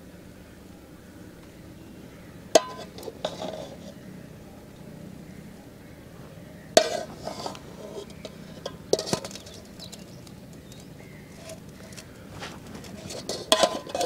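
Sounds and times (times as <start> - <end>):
metal spoon scraping pot: 2.6 - 4.0, 6.8 - 14.0.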